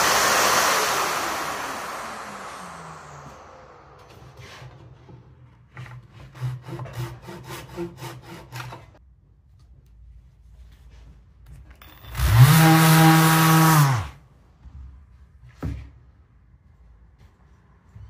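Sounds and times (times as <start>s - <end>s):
sander whining: 0.0s - 4.4s, 12.1s - 14.1s
hand scraper scraping timber: 4.2s - 9.0s.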